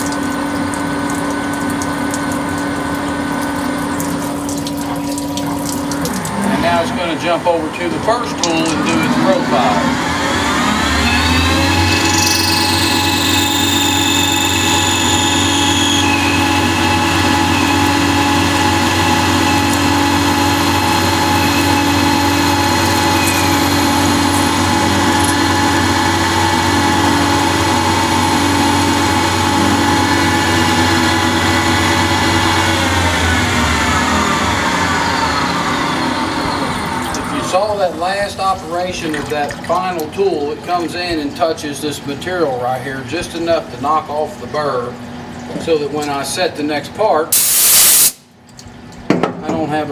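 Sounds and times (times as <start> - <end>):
lathe spindle machine whine: 6.3 - 38.4
falling high tones: 10.3 - 17.7.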